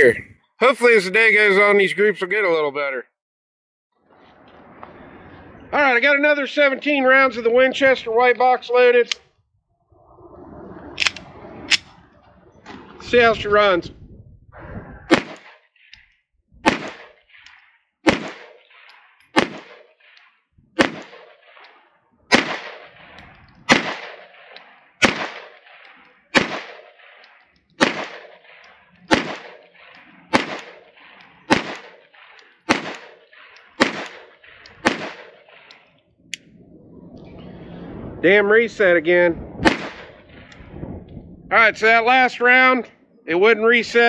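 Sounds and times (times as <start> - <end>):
pistol shots with echo: 15.1 - 15.6, 16.6 - 20.2, 20.8 - 21.7, 22.3 - 35.8, 39.6 - 40.5.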